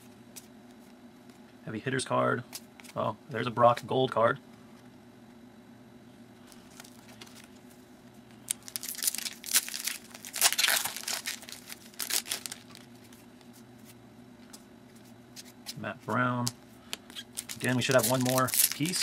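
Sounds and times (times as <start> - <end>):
foil wrapper crinkling and tearing: 8.4 - 13.2, 17.1 - 19.0.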